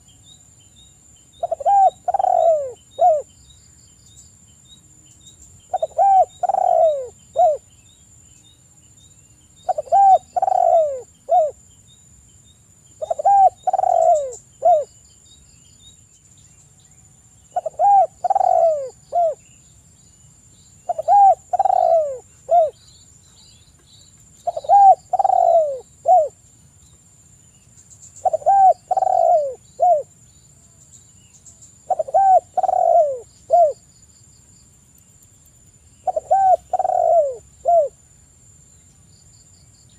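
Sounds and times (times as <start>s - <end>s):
dove cooing: 1.4s - 3.3s, 5.7s - 7.7s, 9.7s - 11.6s, 13.0s - 14.9s, 17.5s - 19.4s, 20.9s - 22.8s, 24.4s - 26.4s, 28.2s - 30.1s, 31.8s - 33.8s, 36.0s - 38.0s.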